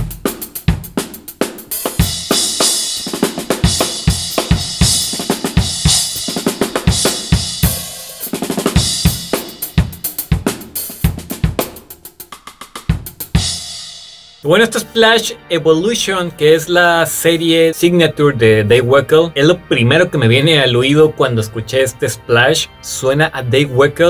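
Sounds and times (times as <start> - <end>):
drum kit groove: 0.0 - 15.0.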